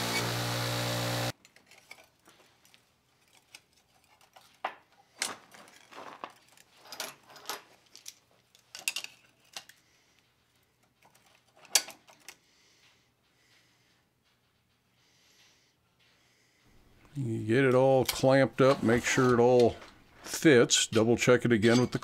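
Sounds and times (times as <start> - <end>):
steel clinking on metal workbench: 21.6 - 22.0.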